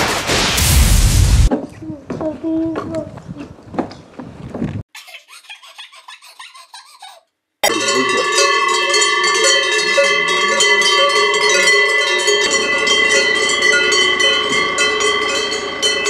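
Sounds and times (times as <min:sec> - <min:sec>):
cowbells clanging: 0:07.6 - 0:16.0.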